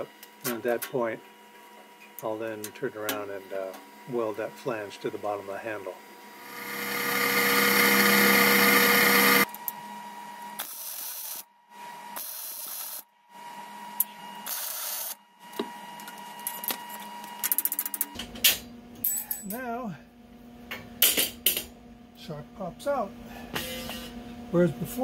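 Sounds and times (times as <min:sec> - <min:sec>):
welder crackling: 0:06.4 - 0:09.5.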